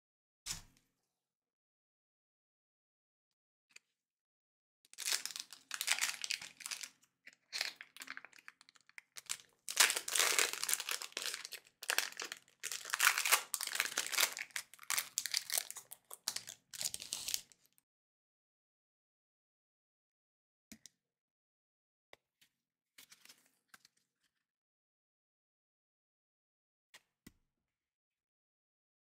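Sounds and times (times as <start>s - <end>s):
foil wrapper crinkling and tearing: 5.0s - 17.6s.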